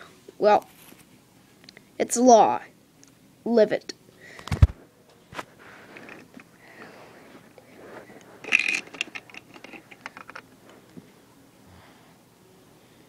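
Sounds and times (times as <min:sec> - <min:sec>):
plastic bricks clattering: 0:08.4 - 0:10.4
plastic bricks clicking and rattling: 0:08.4 - 0:10.5.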